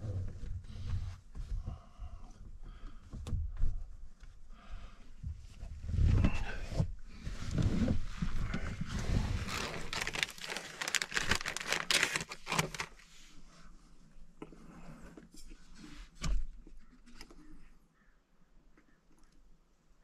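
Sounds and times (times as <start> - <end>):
clothing and bedding rustling: 5.6 - 13.5.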